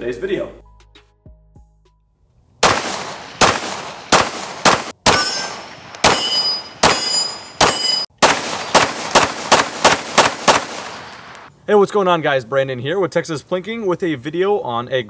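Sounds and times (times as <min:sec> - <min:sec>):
pistol shots with echo: 0:02.6 - 0:11.5
high metallic ringing: 0:05.1 - 0:08.1.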